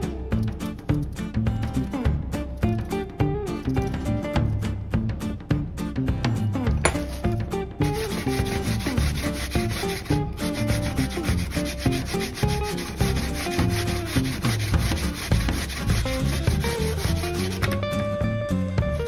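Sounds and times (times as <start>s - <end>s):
radish rasping on a hand grater: 6.9s - 17.8s.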